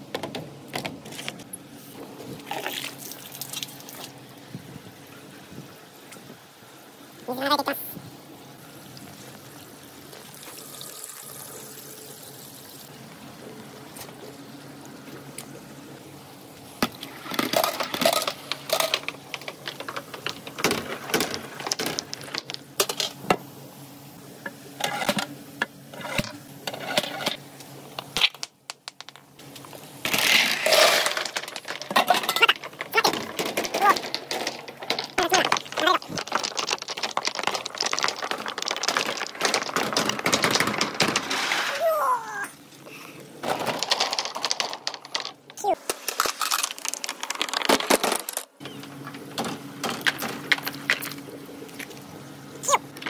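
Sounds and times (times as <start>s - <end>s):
water running down gutter: 2.4s - 4.2s, 8.6s - 13.0s, 30.7s - 40.9s
balls clacking together: 16.8s - 23.5s, 24.4s - 42.3s, 43.4s - 52.0s.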